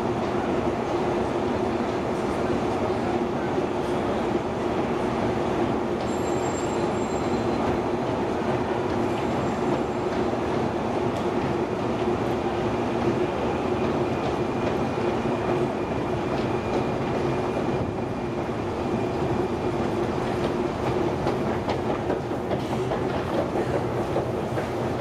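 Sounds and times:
escalator steps clicking: 19.8 - 25.0.

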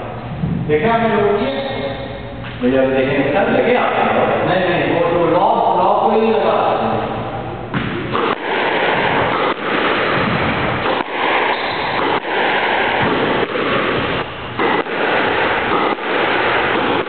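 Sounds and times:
loud steady rushing noise: 0.0 - 17.0
squash ball hitting walls: 7.7 - 17.0.

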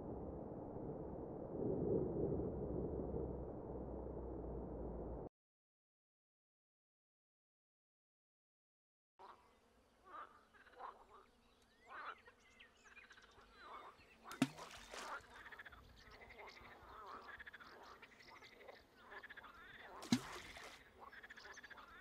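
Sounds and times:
frogs croaking: 9.2 - 22.0
object plopping into water: 14.3 - 15.2, 20.0 - 20.8.

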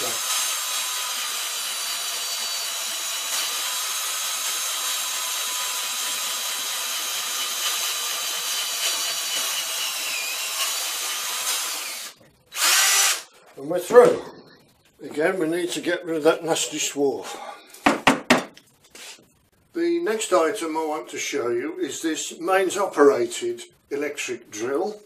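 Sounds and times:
cordless drill whining: 0.0 - 13.3
drill bit cutting metal: 0.0 - 13.3.

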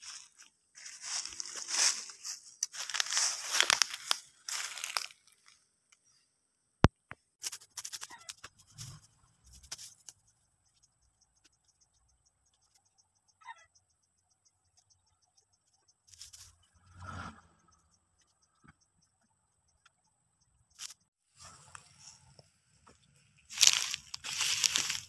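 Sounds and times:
soft scuffs: 0.0 - 5.1
soil and leaf litter crunching: 0.0 - 5.6, 23.4 - 25.0
insects chirring: 0.8 - 5.6, 23.4 - 25.0.

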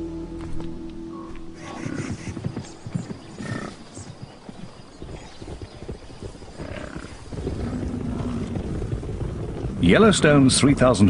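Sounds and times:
hoof thuds: 0.4 - 10.2
animal call: 1.1 - 4.2.

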